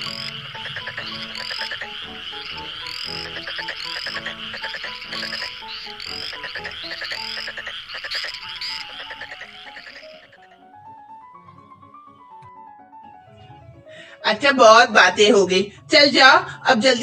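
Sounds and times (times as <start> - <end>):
rising chirp: 0.0 - 10.6
frog-like croaking: 0.0 - 10.8
comic background music: 0.0 - 17.0.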